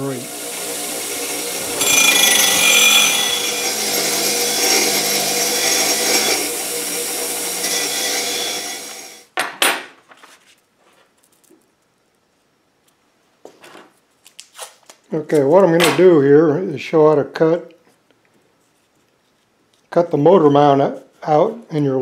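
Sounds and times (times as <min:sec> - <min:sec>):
bench grinder motor hum: 0:00.0 - 0:09.2
wire wheel brushing steel: 0:00.0 - 0:09.2.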